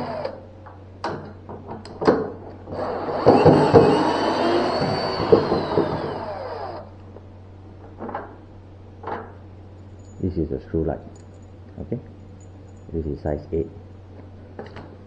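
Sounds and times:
drill-driver motor whine: 0.0 - 0.4, 2.8 - 6.9.

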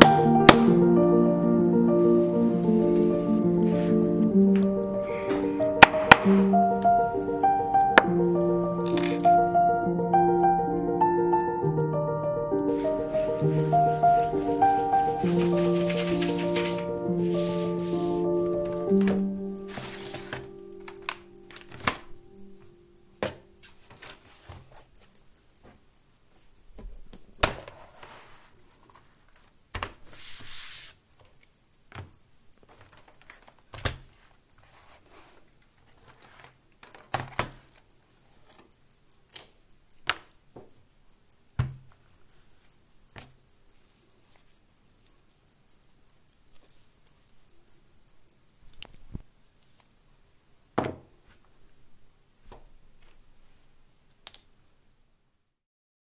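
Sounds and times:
fast even ticking: 0.0 - 49.1.

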